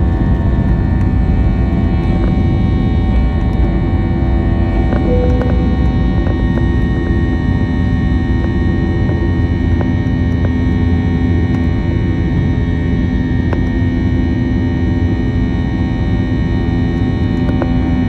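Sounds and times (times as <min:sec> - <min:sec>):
jet cabin drone: 0:00.0 - 0:18.0
steady hum: 0:04.9 - 0:12.0.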